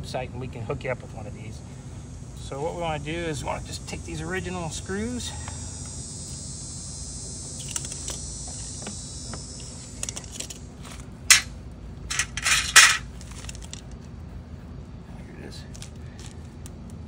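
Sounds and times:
screws rattling: 0:10.0 - 0:11.5, 0:12.1 - 0:13.8
sharp clack: 0:11.3 - 0:11.5.

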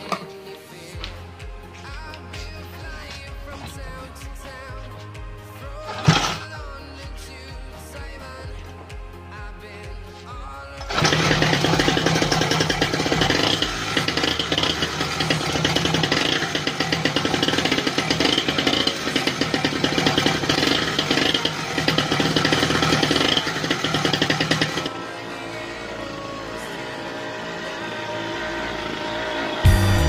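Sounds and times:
mini dirt bike engine buzzing: 0:06.0 - 0:06.4, 0:10.9 - 0:30.0.

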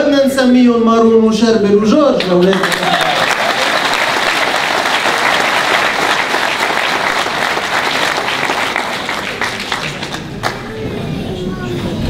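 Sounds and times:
large audience clapping: 0:02.2 - 0:10.9.

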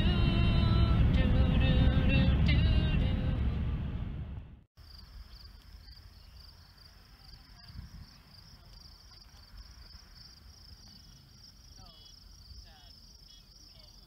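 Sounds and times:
faint low rumble: 0:00.0 - 0:04.7.

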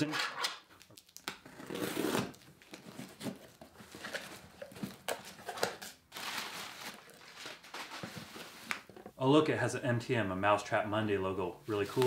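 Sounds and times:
packing tape being slit: 0:00.0 - 0:03.1
crinkling packing paper: 0:06.1 - 0:08.7.

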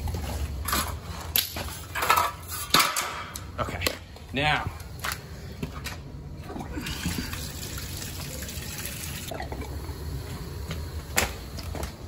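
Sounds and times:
water rushing through pipes: 0:06.4 - 0:10.1.

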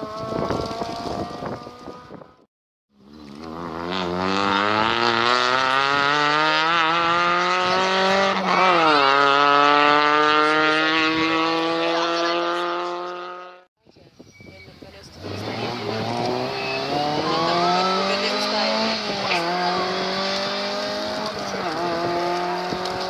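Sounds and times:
rally car accelerating: 0:00.0 - 0:02.4, 0:03.0 - 0:13.7, 0:15.2 - 0:23.0
another engine: 0:03.0 - 0:13.6, 0:15.2 - 0:23.0.

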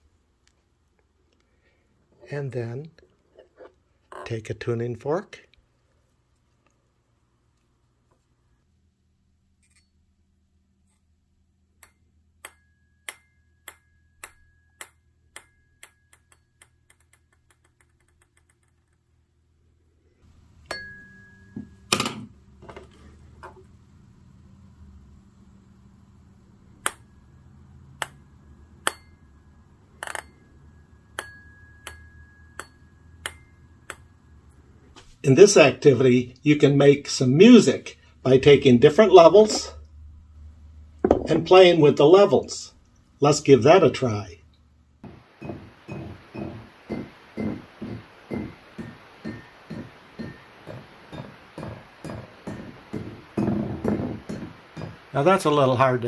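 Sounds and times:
mallet tapping glass bottles: 0:11.8 - 0:18.3, 0:20.6 - 0:21.8, 0:30.0 - 0:34.2, 0:45.0 - 0:55.2
ball clicking on tuning fork: 0:11.8 - 0:18.6, 0:30.0 - 0:34.2
faint high ringing tone: 0:11.9 - 0:16.8, 0:20.6 - 0:21.9, 0:27.0 - 0:34.8, 0:45.1 - 0:53.0.

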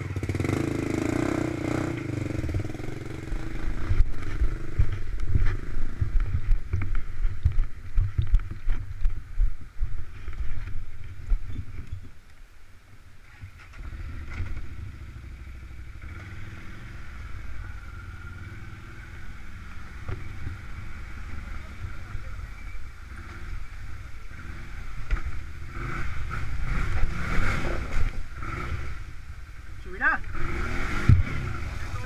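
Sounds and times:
quad engine running at low revs: 0:00.0 - 0:12.0, 0:13.2 - 0:32.0.

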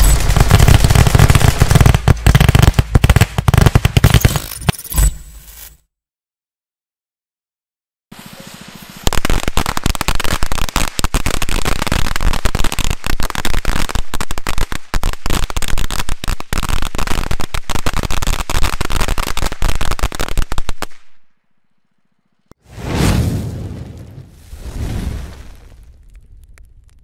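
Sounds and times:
loud boom: 0:22.7 - 0:26.5.

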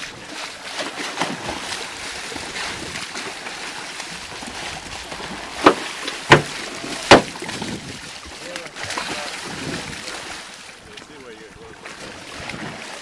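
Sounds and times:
fish thrashing in water: 0:00.0 - 0:10.6, 0:11.8 - 0:13.0
sharp slaps on water: 0:00.7 - 0:01.7, 0:05.6 - 0:07.6.

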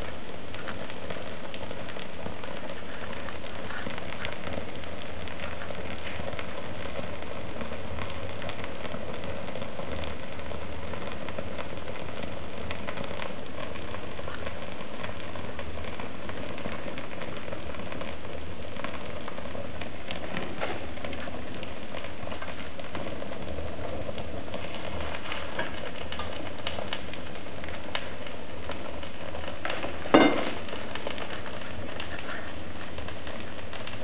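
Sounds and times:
fire crackling in a stove: 0:00.0 - 0:34.0
loud sharp pop: 0:20.1 - 0:21.3, 0:29.6 - 0:32.3.

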